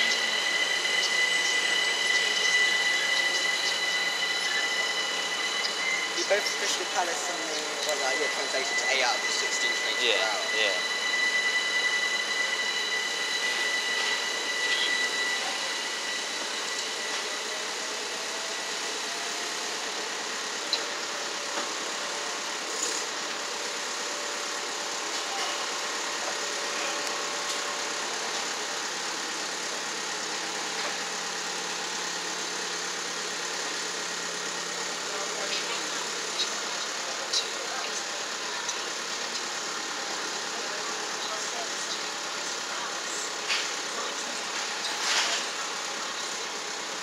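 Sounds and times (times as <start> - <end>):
electric train whine: 0.0 - 47.0
trains on the line: 0.0 - 47.0.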